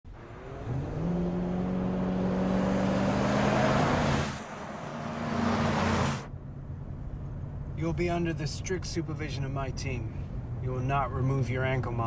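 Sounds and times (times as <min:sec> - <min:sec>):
vehicle engines driving past: 0:00.1 - 0:07.8
road noise rushing: 0:00.1 - 0:10.6.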